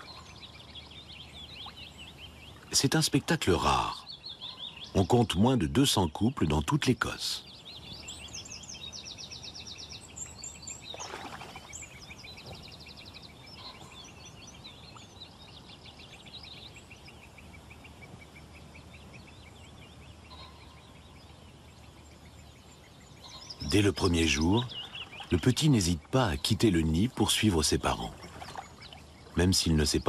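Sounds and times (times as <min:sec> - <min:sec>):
songbirds singing and twittering: 0:00.0 - 0:30.0
low bird call: 0:07.0 - 0:30.0.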